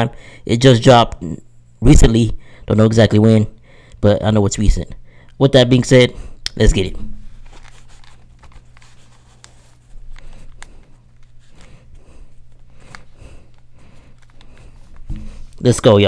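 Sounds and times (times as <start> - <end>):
steady low hum: 0.0 - 16.0
headphones being handled: 7.2 - 15.7.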